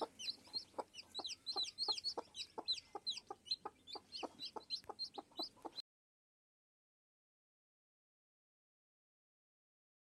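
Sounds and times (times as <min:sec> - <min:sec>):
chicks peeping: 0:00.0 - 0:05.8
hen clucking softly: 0:00.0 - 0:05.8.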